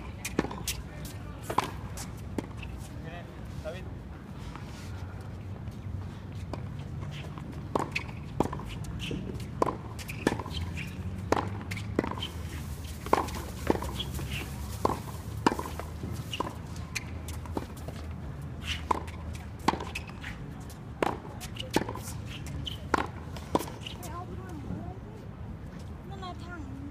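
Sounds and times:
racket hitting tennis ball: 0:06.5 - 0:24.1.

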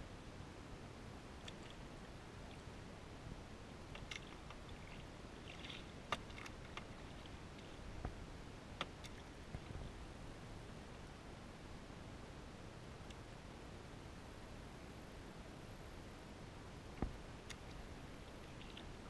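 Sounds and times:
paddle strokes with splashes: 0:03.9 - 0:08.2, 0:17.0 - 0:19.0.

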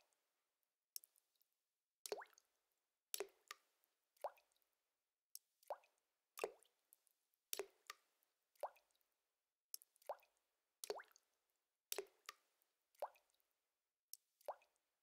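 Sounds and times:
water drops plinking into water: 0:02.0 - 0:02.4, 0:03.2 - 0:04.6, 0:05.4 - 0:06.7, 0:07.5 - 0:09.0, 0:09.8 - 0:11.3, 0:11.9 - 0:13.4.

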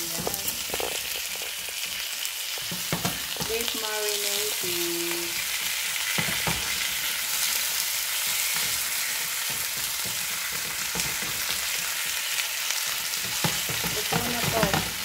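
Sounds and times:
beef sizzling in a pan: 0:00.0 - 0:15.0
spatula knocking against pan: 0:06.1 - 0:06.8, 0:08.6 - 0:11.6, 0:13.2 - 0:15.0.

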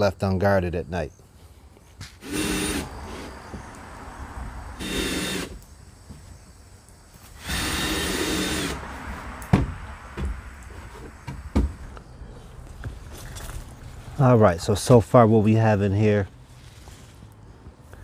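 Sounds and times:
power drill driving screws: 0:02.2 - 0:03.3, 0:04.8 - 0:05.6, 0:07.4 - 0:08.8
sharp knocks: 0:09.5 - 0:10.5, 0:11.1 - 0:11.8.

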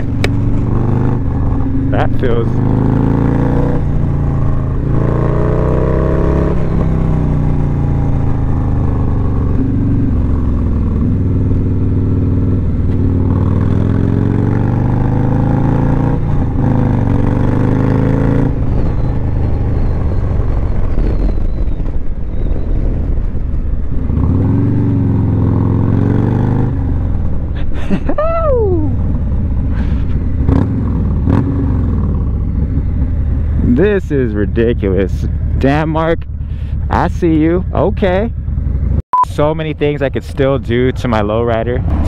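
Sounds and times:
motorcycle engine revving: 0:00.0 - 0:27.6, 0:28.8 - 0:39.0, 0:39.6 - 0:42.0
wind noise: 0:16.1 - 0:37.8.

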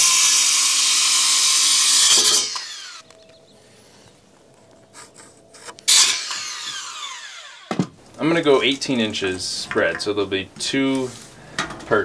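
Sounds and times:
circular saw cutting wood: 0:00.0 - 0:03.1, 0:05.0 - 0:07.8
saw blade spinning down whine: 0:01.1 - 0:03.1, 0:05.9 - 0:07.7.

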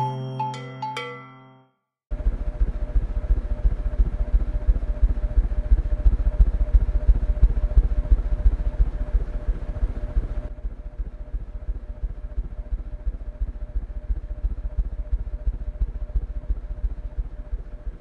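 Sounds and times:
ceiling fan fluttering: 0:02.1 - 0:18.0.

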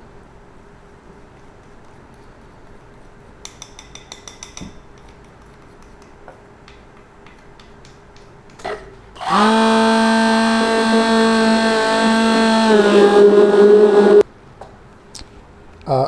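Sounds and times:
light clicks and taps: 0:03.4 - 0:08.7
immersion blender whining: 0:09.2 - 0:14.2.

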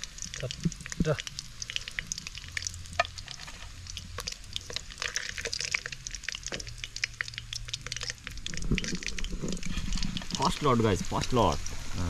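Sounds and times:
oil sizzling and popping: 0:00.0 - 0:12.0.

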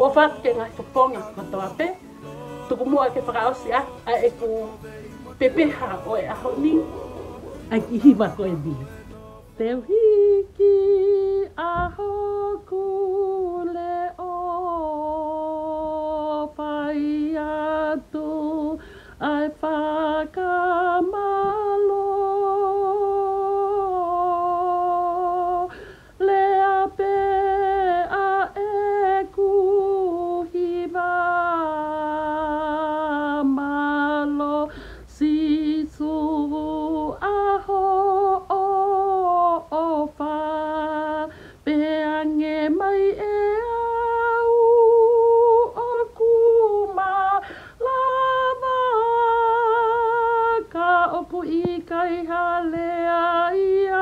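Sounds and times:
woman singing: 0:00.0 - 0:54.0
singer breathing: 0:18.8 - 0:19.2, 0:25.7 - 0:26.2, 0:34.7 - 0:35.1, 0:41.3 - 0:41.7, 0:47.4 - 0:47.8.

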